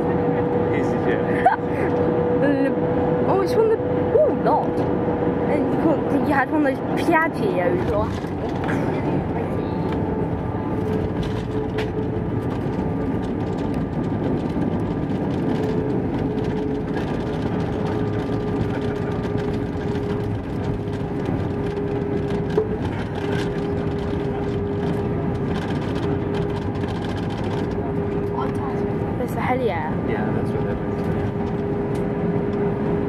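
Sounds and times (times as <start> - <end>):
aircraft cabin rumble: 0.0 - 33.0.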